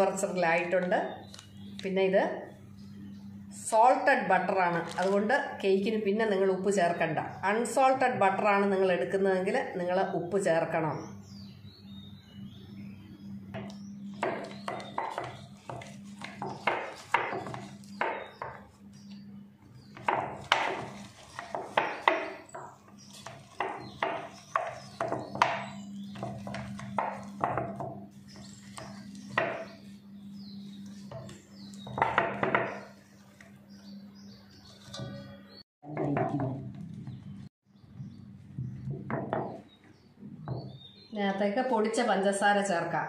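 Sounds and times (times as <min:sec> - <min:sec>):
steady low hum: 0:00.0 - 0:21.1.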